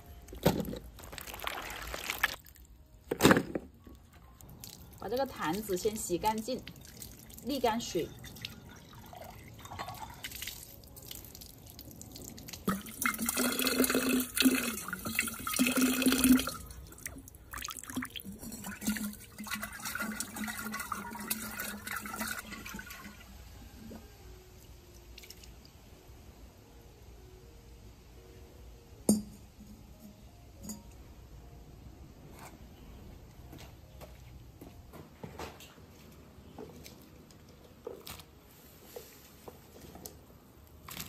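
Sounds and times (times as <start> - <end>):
water splashing and sloshing: 0.3 - 13.4
water dripping: 1.0 - 2.8, 3.9 - 23.2, 25.1 - 25.8.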